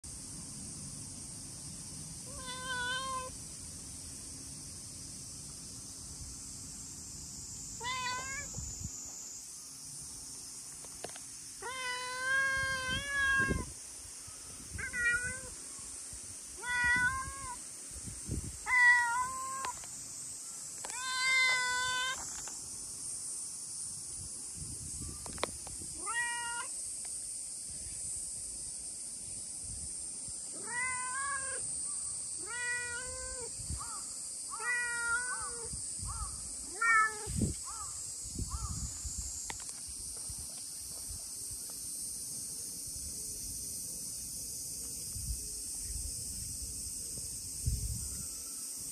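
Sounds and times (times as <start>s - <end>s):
cat meowing: 2.3s - 3.3s, 7.8s - 8.5s, 11.6s - 13.7s, 14.8s - 15.5s, 16.6s - 17.6s, 18.7s - 19.7s, 20.9s - 22.2s, 26.0s - 26.7s, 30.6s - 31.6s, 32.4s - 33.5s, 34.6s - 35.7s, 36.7s - 37.3s.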